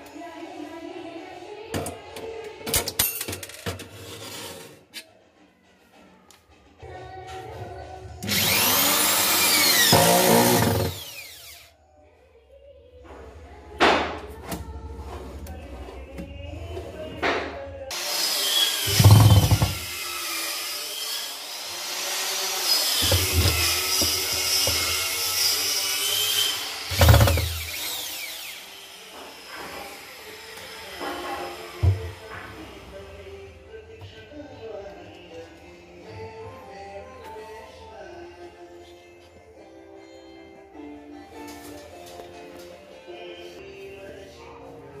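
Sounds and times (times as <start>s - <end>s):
electric drill motor whine: 8.2s - 11.7s, 17.9s - 30.7s.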